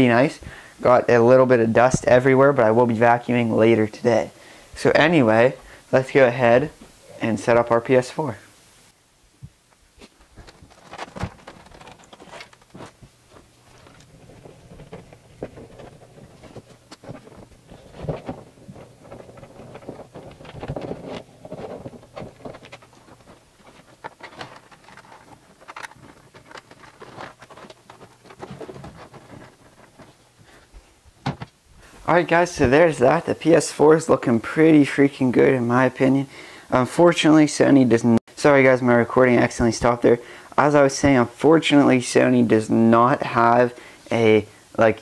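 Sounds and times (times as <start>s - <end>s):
rustling: 6.5s - 33.0s
handling knocks and clicks: 9.4s - 31.6s.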